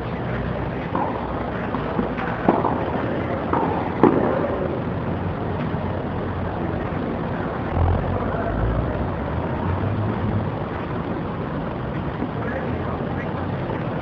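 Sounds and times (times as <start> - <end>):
steady background noise: 0.0 - 14.0
tennis balls struck by rackets: 0.4 - 5.0.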